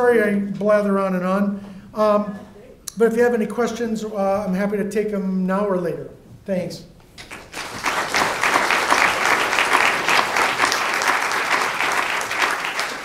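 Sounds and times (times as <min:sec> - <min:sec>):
audience applause: 0:07.2 - 0:13.0.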